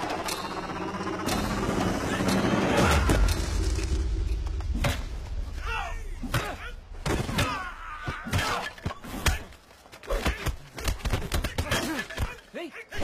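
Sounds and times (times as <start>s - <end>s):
men grunting and shouting: 5.6s - 13.0s.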